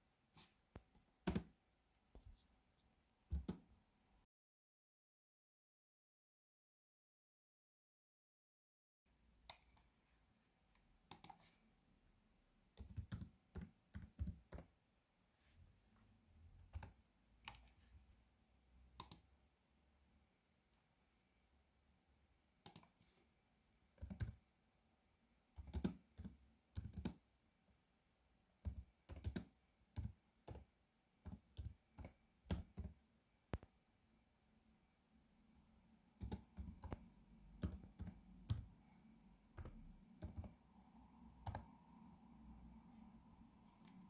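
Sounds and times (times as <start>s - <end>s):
typing on computer keyboard: 1.0s - 1.5s, 3.3s - 3.6s, 12.8s - 14.7s, 16.7s - 17.0s, 22.6s - 22.9s, 24.0s - 24.4s, 25.6s - 27.2s, 28.6s - 30.7s, 31.3s - 33.0s, 36.2s - 37.0s, 37.6s - 38.7s, 39.6s - 40.6s, 41.4s - 41.7s.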